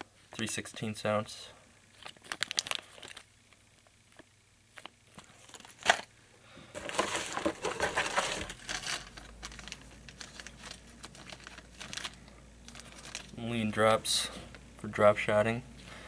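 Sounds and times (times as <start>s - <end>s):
plastic bag rustling: 1.9s - 3.3s, 6.7s - 13.4s.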